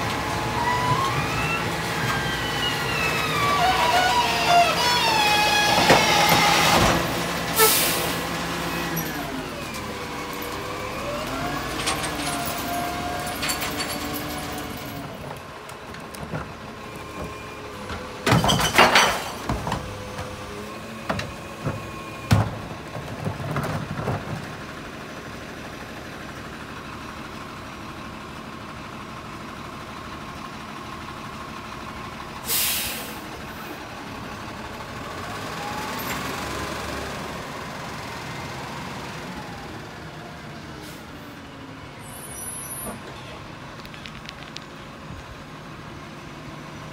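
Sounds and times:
air brakes hissing: 0:07.6 - 0:08.2, 0:32.4 - 0:33.3
cart banging and clattering: 0:11.5 - 0:15.3, 0:17.9 - 0:20.4, 0:21.1 - 0:24.7.

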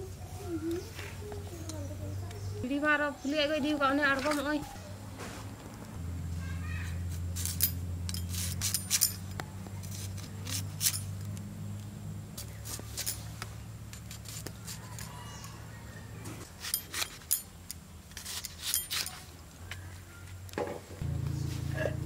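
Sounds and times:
low steady hum: 0:21.0 - 0:22.0.

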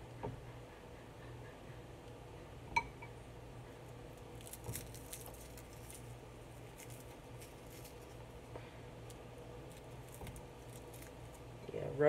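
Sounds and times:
dried buds crackling: 0:03.6 - 0:12.0.

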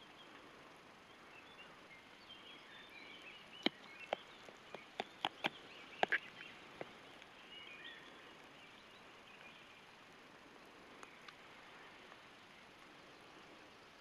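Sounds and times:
faint bird chirping: 0:00.0 - 0:14.0.

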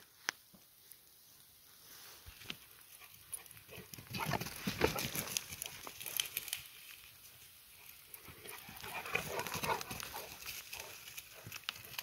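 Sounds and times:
dog footfalls on dirt: 0:03.9 - 0:06.1, 0:08.8 - 0:12.0.

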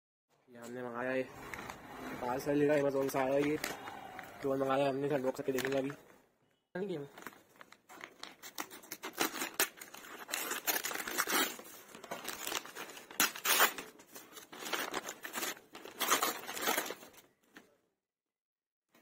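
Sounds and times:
paper crinkling and rustling: 0:00.6 - 0:06.0, 0:07.0 - 0:17.8
paper tearing: 0:08.4 - 0:17.2.

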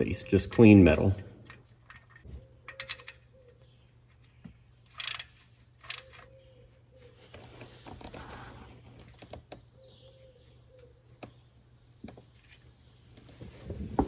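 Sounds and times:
ratchet clicking: 0:04.9 - 0:06.3.

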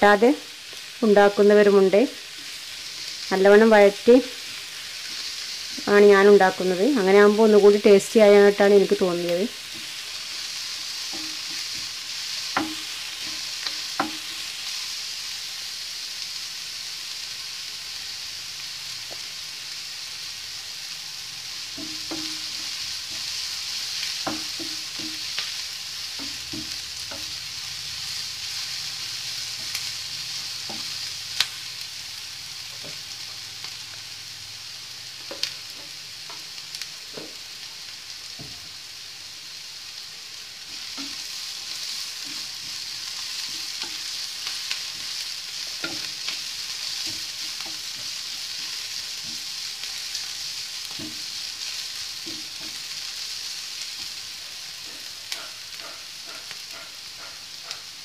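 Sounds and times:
vegetables sizzling in oil: 0:00.0 - 0:58.0
wooden spatula knocking pan: 0:11.0 - 0:14.3, 0:21.8 - 0:23.3, 0:24.2 - 0:25.3.

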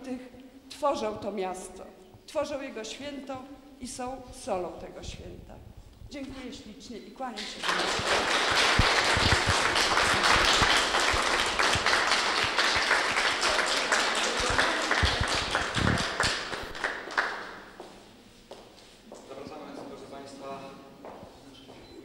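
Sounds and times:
small audience clapping: 0:07.4 - 0:17.9.

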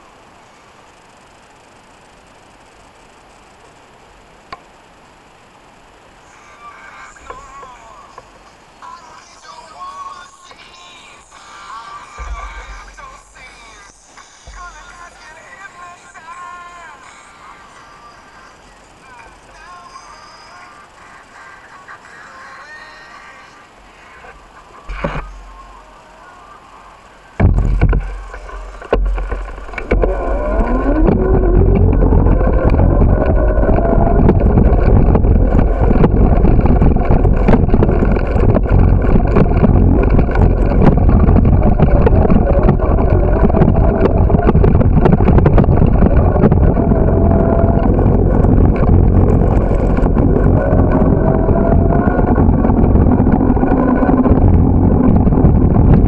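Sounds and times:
faint rising whine: 0:00.0 - 0:56.0
tyres rolling over rough pavement: 0:11.9 - 0:15.8, 0:24.0 - 0:56.0
wind rumble on microphone: 0:12.2 - 0:15.3, 0:27.4 - 0:56.0.

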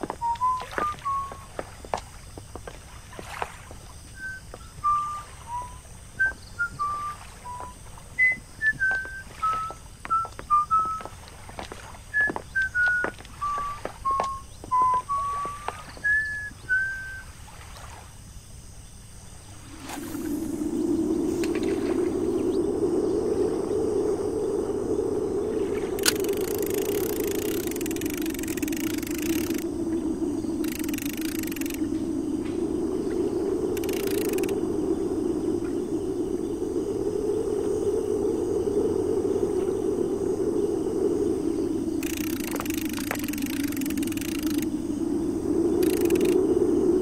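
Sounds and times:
person whistling a tune: 0:00.2 - 0:01.4, 0:04.2 - 0:11.1, 0:12.2 - 0:17.2
light clicks: 0:26.0 - 0:29.6.

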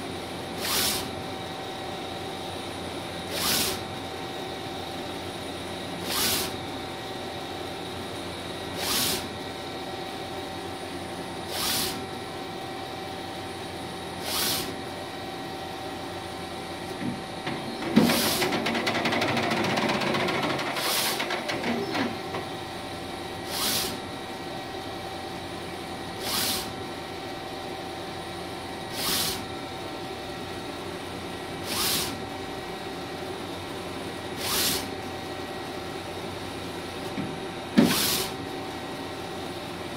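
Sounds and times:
printer humming with steady tone: 0:00.0 - 0:39.9
whirring with rapid ticking: 0:17.0 - 0:22.6.

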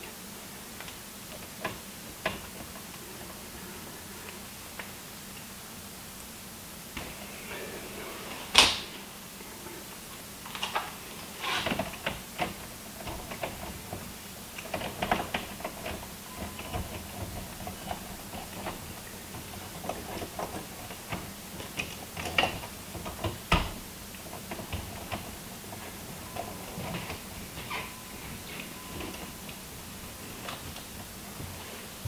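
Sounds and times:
faint steady hum: 0:00.0 - 0:32.0
tools clicking and scraping on wire: 0:10.5 - 0:29.6.

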